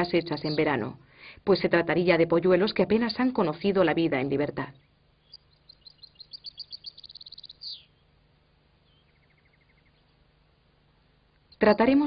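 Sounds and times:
goldfinches chirping and twittering: 0.0 - 0.8, 2.6 - 3.9, 4.8 - 8.1, 8.8 - 10.2.

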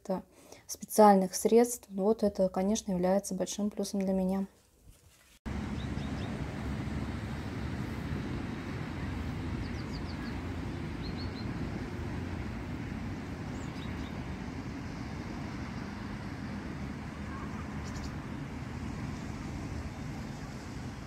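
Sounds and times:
small birds chirping: 5.7 - 6.4, 8.8 - 12.0, 13.1 - 14.4, 17.2 - 18.5.

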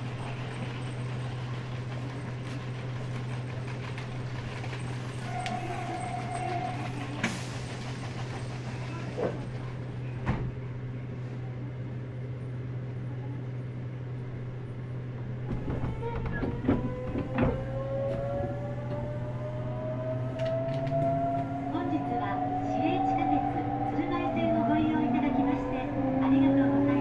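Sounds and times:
electric train humming: 0.0 - 10.1, 10.7 - 27.0
traction inverter whine rising: 16.9 - 27.0.

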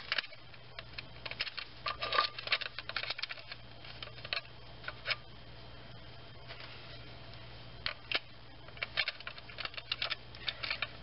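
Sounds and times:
metal parts clicking and tapping: 0.0 - 5.2, 7.8 - 11.0.

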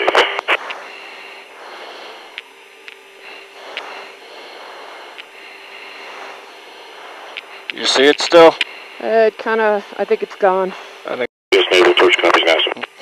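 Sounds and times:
faint steady hum: 0.0 - 13.0
radio channel hiss: 0.0 - 13.0.

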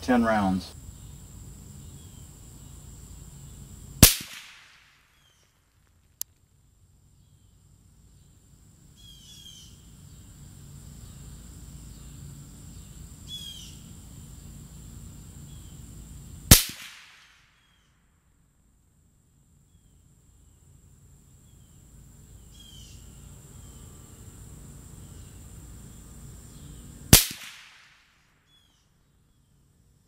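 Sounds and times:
high insect drone: 0.0 - 30.0
suppressed rifle shots echoing: 4.0 - 5.1, 16.5 - 17.4, 27.1 - 28.2
birds chirping: 11.0 - 13.9.

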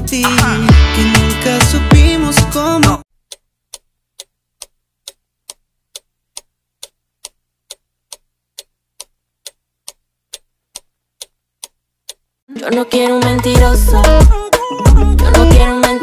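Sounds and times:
clock ticking: 3.2 - 12.3.

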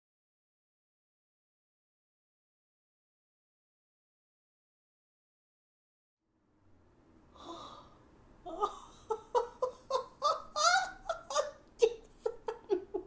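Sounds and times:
woman breathing in: 7.3 - 8.1
woman crying out: 8.5 - 12.1
woman laughing and exclaiming: 8.5 - 13.0.

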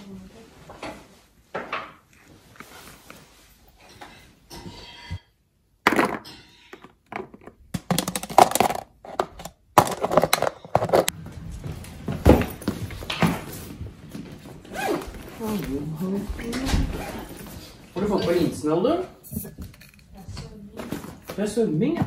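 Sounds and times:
plastic lunch box knocks and clatter: 7.1 - 11.1.

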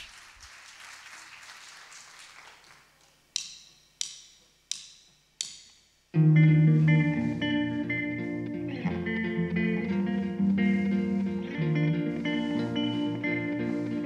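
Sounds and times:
faint audience applause: 0.0 - 3.1.

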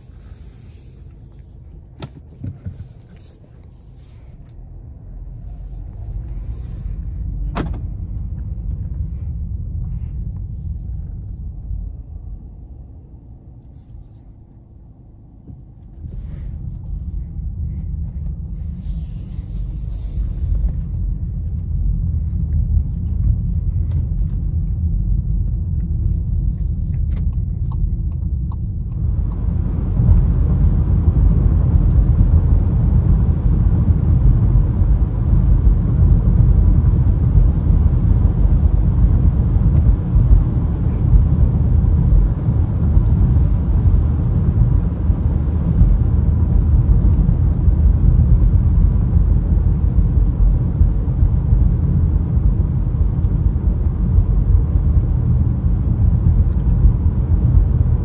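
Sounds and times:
tyre hiss on road: 0.0 - 1.6, 18.4 - 21.0
car engine and road rumble: 0.0 - 58.0.

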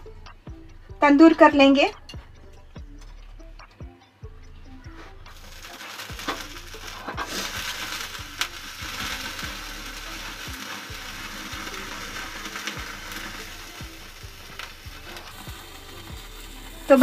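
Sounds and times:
chicken sizzling over flame: 4.8 - 17.0.

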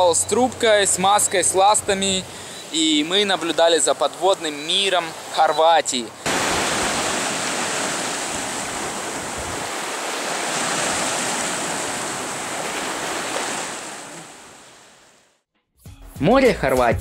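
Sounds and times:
waves washing over pebbles: 3.0 - 15.1.

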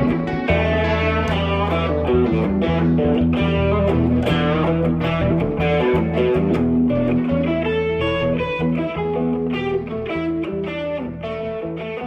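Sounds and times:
instrumental rock music: 0.0 - 12.0.

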